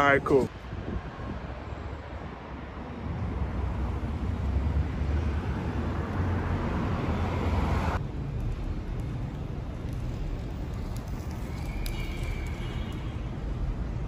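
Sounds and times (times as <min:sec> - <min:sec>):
street noise: 0:00.0 - 0:14.0
wind on microphone: 0:00.5 - 0:03.4.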